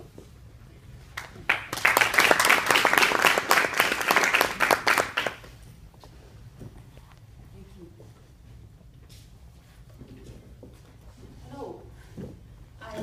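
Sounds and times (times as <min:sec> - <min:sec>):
audience applauding: 0:01.2 - 0:05.5.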